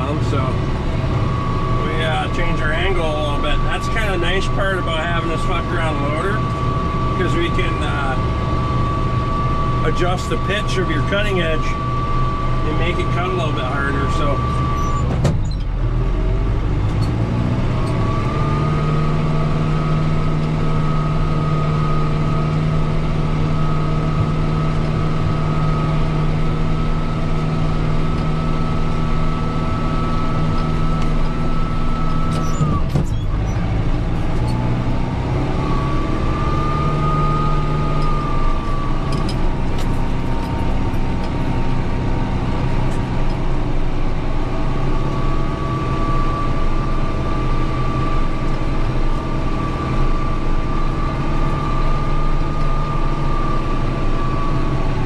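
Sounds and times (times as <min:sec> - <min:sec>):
high whine: 0:00.0 - 0:15.6
tractor diesel engine under load: 0:00.0 - 0:55.0.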